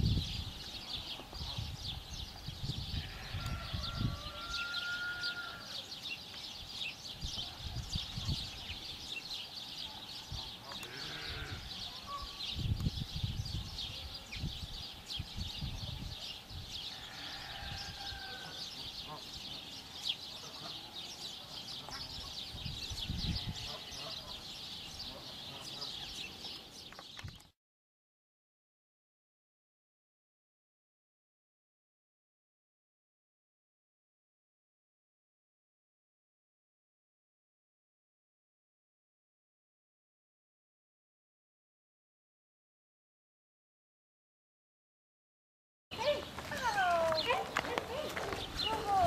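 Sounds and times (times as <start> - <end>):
wind rumbling on microphone: 0.0 - 4.7, 6.5 - 9.1, 11.4 - 17.0, 22.1 - 23.8, 46.0 - 49.0
small birds chirping: 0.0 - 27.6, 45.9 - 49.0.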